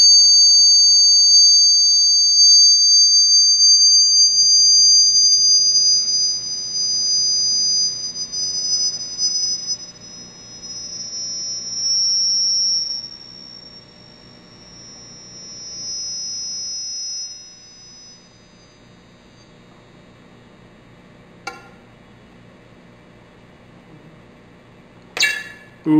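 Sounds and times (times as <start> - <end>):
vibrating plate whistling tone: 0.0 - 19.7, 25.2 - 25.9.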